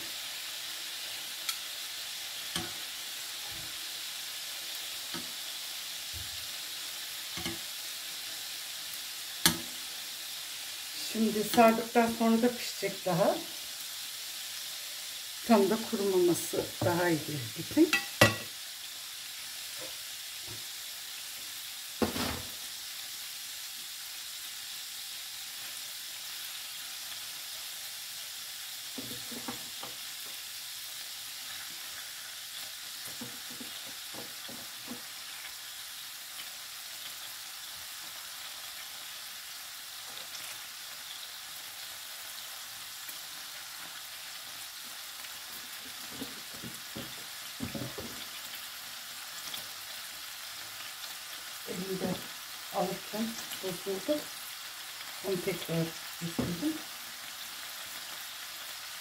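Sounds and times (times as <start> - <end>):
hot oil sizzling: 0.0 - 59.0
knocks of meat on grill: 9.4 - 9.8, 22.0 - 22.6, 46.1 - 48.2.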